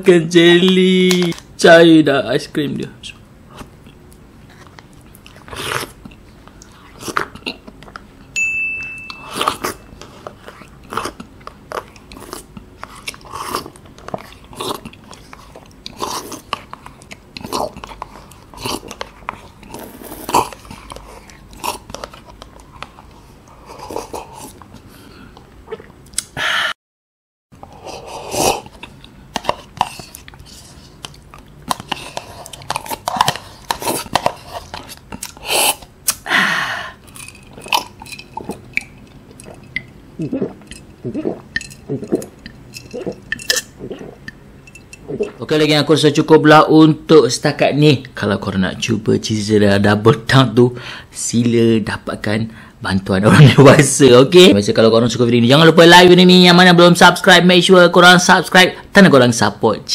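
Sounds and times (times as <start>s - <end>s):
wet mouth eating sounds: 3.5s - 8.2s, 9.2s - 26.4s, 27.6s - 36.3s, 37.0s - 45.5s.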